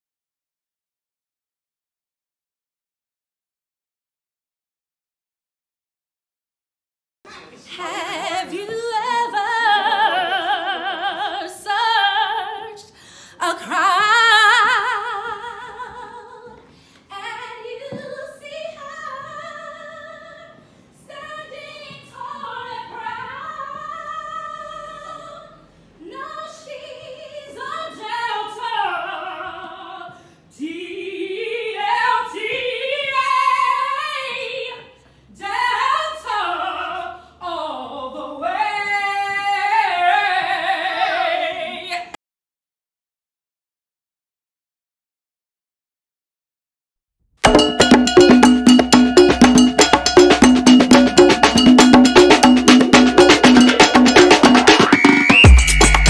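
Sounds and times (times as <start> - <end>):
women singing a cappella: 7.5 - 42.2.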